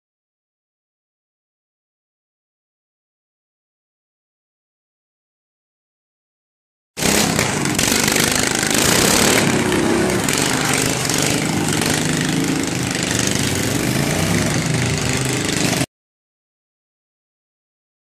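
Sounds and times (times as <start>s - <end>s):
lawn mower engines running: 7.0s - 15.9s.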